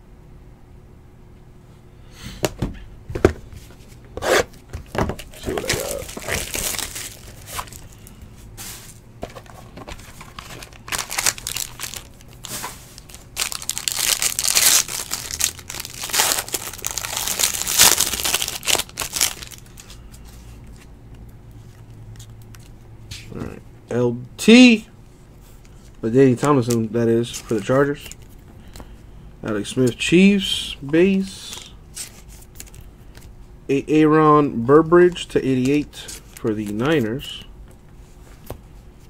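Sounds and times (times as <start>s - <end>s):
card packaging tearing and crinkling: 5.2s - 8.1s, 9.4s - 20.0s, 35.6s - 37.2s.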